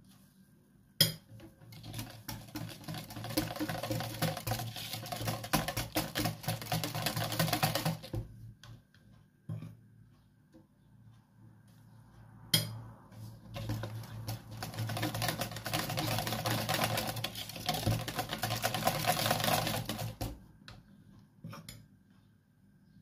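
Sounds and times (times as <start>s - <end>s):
whisk clattering in plastic bowl: 1.2s - 8.4s, 13.5s - 20.4s.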